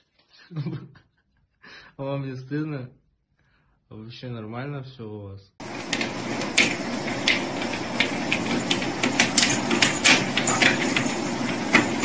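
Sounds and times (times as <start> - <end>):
paws clicking on treadmill belt: 5.6 - 12.0
treadmill running: 5.6 - 12.0.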